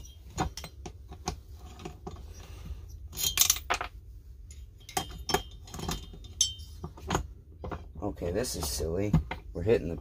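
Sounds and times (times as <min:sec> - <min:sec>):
metal parts clicking and clinking: 0:00.0 - 0:07.9
metallic clatter: 0:00.0 - 0:08.0.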